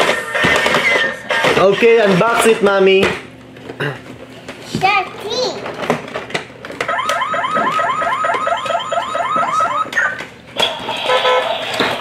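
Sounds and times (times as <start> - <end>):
toy car rising electronic chirps: 6.9 - 10.2.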